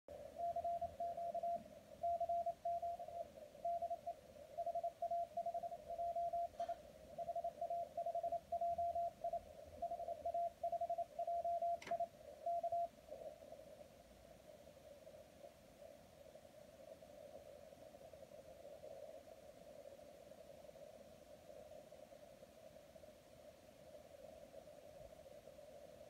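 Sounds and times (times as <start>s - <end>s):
static crackle: 0.1s - 26.0s
morse code beeps: 0.4s - 12.9s.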